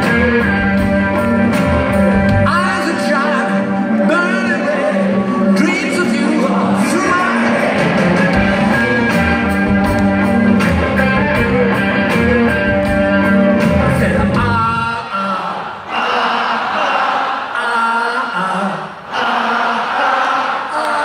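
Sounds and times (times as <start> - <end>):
drums: 0.0 - 15.0
guitar: 0.0 - 15.0
bass notes: 6.6 - 14.7.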